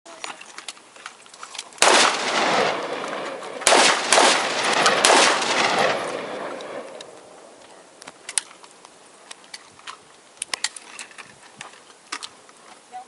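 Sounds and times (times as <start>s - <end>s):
rifle shots with rolling echo: 1.8s - 7.6s.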